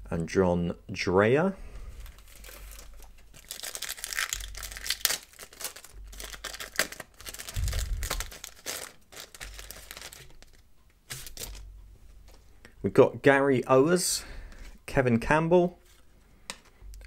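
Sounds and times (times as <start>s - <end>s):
plastic wrapper crinkling and tearing: 2.0s - 11.6s
low bump: 7.6s - 8.3s.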